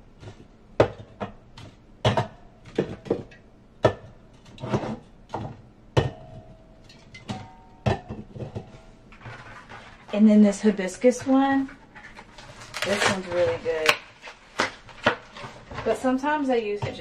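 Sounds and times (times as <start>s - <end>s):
cans and bottles knocking and clinking: 0.2s - 10.0s.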